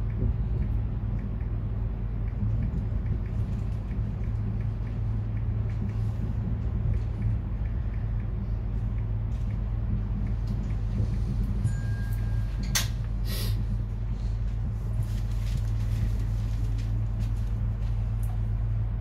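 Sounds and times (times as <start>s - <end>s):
electric train low hum: 0.0s - 19.0s.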